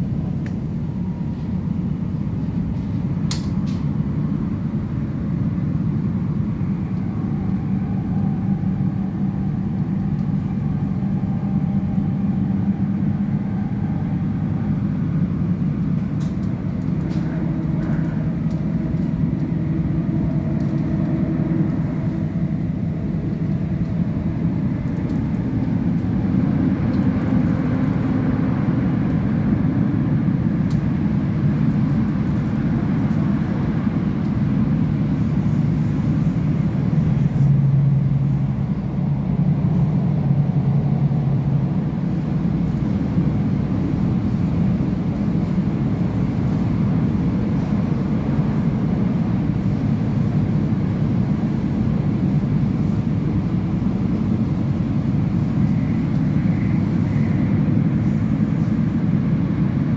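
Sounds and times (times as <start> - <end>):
low hums: 0.0 - 59.9
train wheels rumbling on rails: 0.0 - 59.9.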